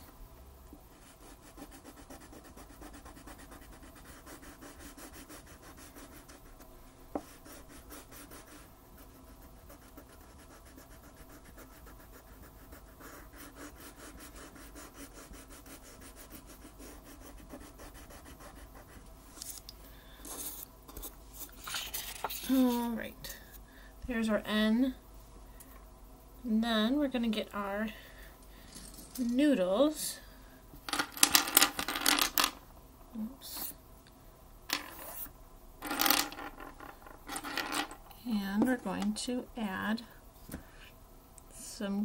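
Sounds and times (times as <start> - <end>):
crayon scratching on paper: 0.9 - 19.0
paper rustling: 21.4 - 22.7.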